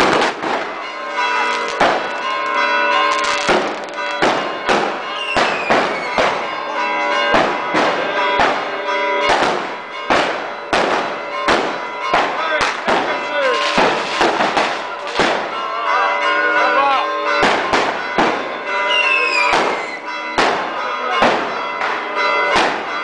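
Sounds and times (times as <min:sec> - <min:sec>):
firecracker bangs: 0:00.0 - 0:06.6, 0:07.2 - 0:15.6, 0:17.4 - 0:23.0
church bells ringing: 0:00.0 - 0:23.0.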